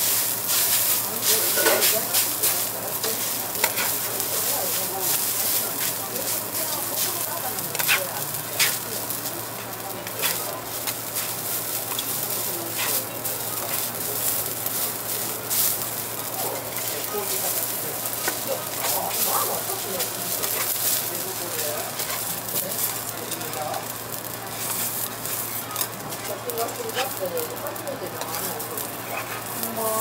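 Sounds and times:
rice sizzling on griddle: 0:00.0 - 0:30.0
metal spatulas chopping and scraping: 0:01.4 - 0:01.9, 0:03.1 - 0:04.0, 0:07.7 - 0:08.0.

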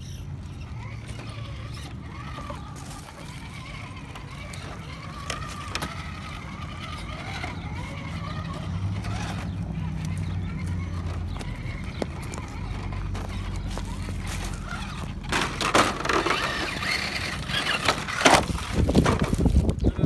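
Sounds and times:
toy car electric motor whining: 0:00.0 - 0:20.0.

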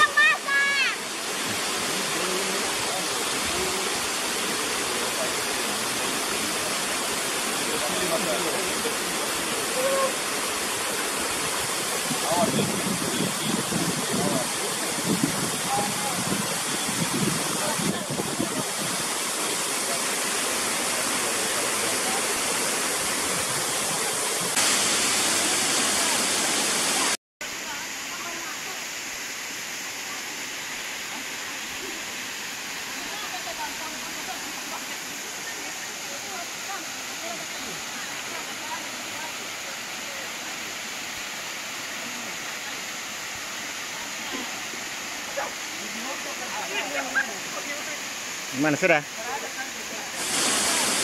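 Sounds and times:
waterfall rushing: 0:00.0 - 0:51.0
waterfall splashing onto rock: 0:50.2 - 0:51.0.

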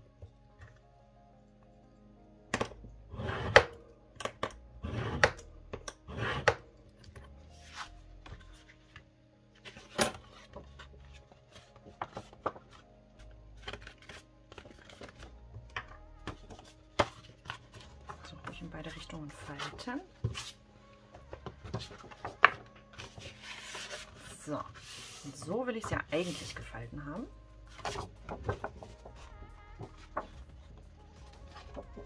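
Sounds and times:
soft background music: 0:00.0 - 0:32.0
paper rustling and crackling: 0:07.6 - 0:18.8, 0:21.3 - 0:26.7, 0:27.7 - 0:32.0.

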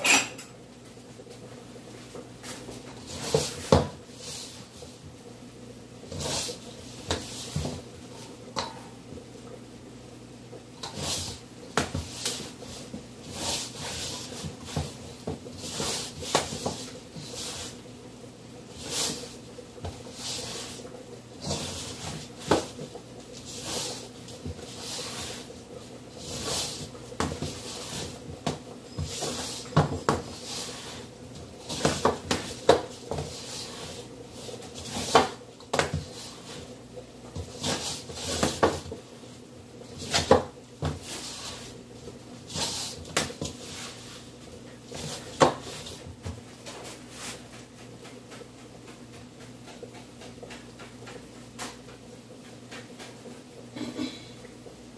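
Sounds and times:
dough slapping in metal bowl: 0:10.8 - 0:17.8, 0:18.7 - 0:39.1, 0:39.9 - 0:47.4.

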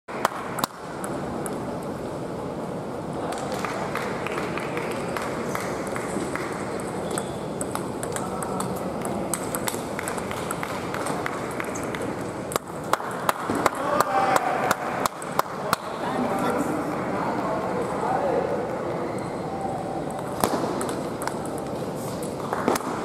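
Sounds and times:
murmur of sports hall: 0:00.1 - 0:23.0
table tennis ball clicking: 0:05.9 - 0:13.4, 0:20.0 - 0:21.8.

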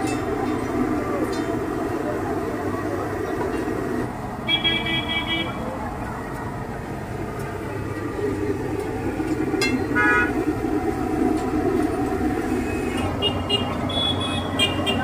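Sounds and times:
road traffic: 0:00.0 - 0:15.0
vehicle horn toot: 0:04.4 - 0:05.6, 0:09.9 - 0:10.3, 0:13.0 - 0:15.0.

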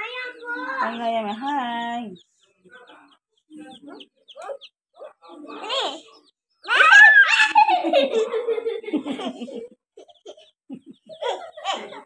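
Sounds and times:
person giggling: 0:07.6 - 0:12.0.

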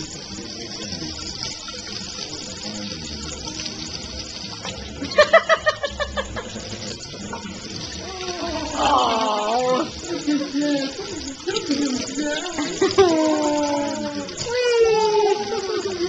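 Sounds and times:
faucet running into sink: 0:00.0 - 0:16.0
pitched laugh-like pulses: 0:05.0 - 0:07.0, 0:08.1 - 0:16.0.

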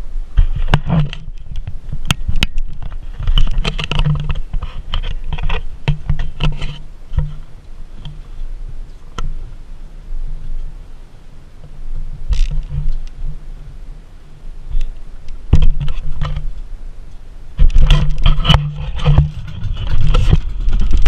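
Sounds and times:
sharp knocks and clatter: 0:00.4 - 0:07.4, 0:15.5 - 0:16.5, 0:17.6 - 0:21.0
motorboat engine throbbing: 0:00.8 - 0:21.0.

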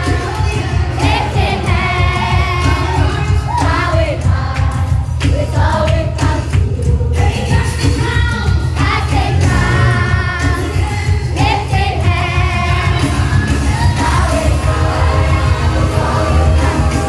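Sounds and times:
voices singing gospel music: 0:00.0 - 0:17.0
heavy bass: 0:08.6 - 0:17.0.

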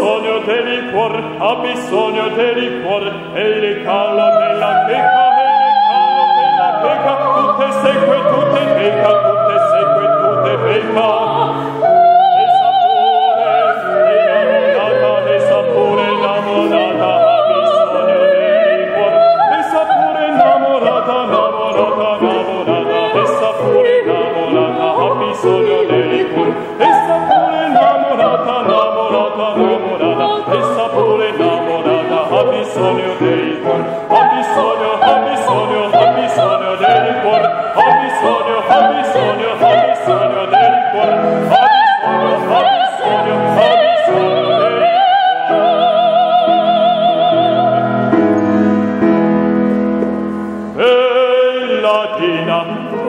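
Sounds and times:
male opera singer singing: 0:00.0 - 0:47.9, 0:50.8 - 0:53.0
soprano singing opera: 0:00.0 - 0:48.1, 0:50.8 - 0:53.0
grand piano accompaniment: 0:00.0 - 0:53.0.

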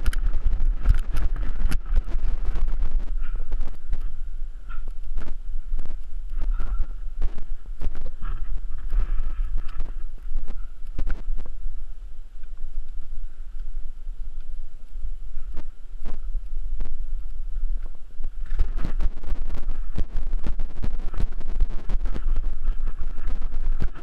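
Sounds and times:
bike frame rattling over bumps: 0:00.0 - 0:04.1
wind rumbling on microphone: 0:00.0 - 0:24.0.

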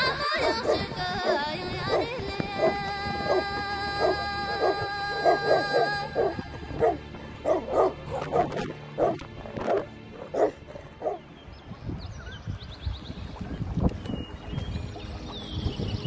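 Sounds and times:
background music with held tone: 0:00.0 - 0:16.0
dog barking: 0:04.0 - 0:11.2.

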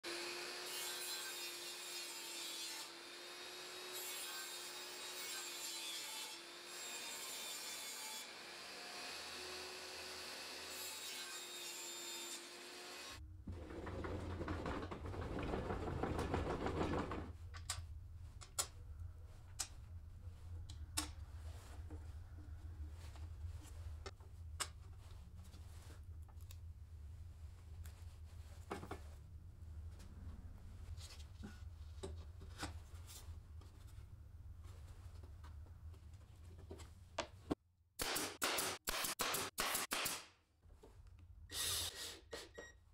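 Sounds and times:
table saw cutting: 0:00.0 - 0:13.2.

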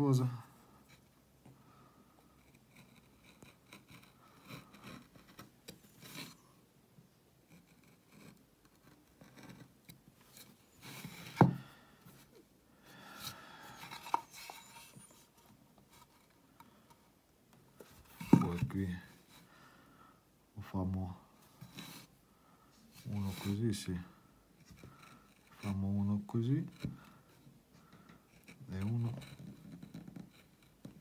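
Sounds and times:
carving tool scraping wood: 0:02.2 - 0:06.5, 0:07.5 - 0:11.5, 0:13.2 - 0:16.4, 0:23.0 - 0:23.6, 0:24.6 - 0:26.0, 0:26.6 - 0:27.4, 0:28.0 - 0:31.0.

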